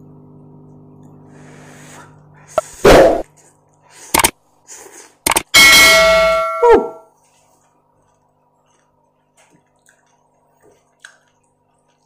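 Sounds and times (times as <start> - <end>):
faint steady hum: 0.0 - 12.0
person chewing noodles: 7.3 - 12.0.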